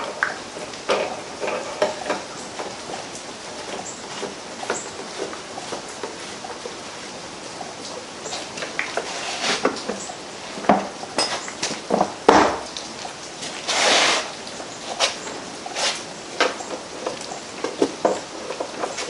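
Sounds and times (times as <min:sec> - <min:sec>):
short rushing hiss: 0:13.7 - 0:14.4, 0:15.8 - 0:16.0.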